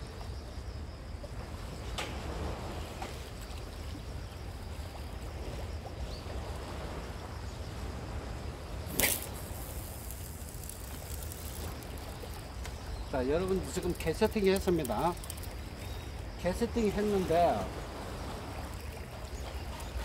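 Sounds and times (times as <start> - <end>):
fishing rod whoosh: 8.8 - 12.5
fishing reel clicks: 8.9 - 12.3.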